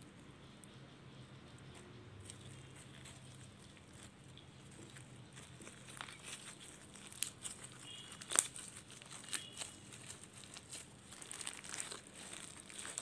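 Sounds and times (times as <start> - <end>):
slime crackling and popping: 2.3 - 13.0.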